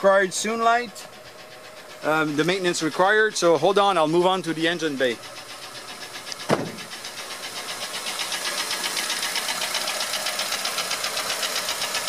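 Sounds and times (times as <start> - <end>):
car engine idling: 0.0 - 12.0
rapid engine ticking: 0.0 - 12.0.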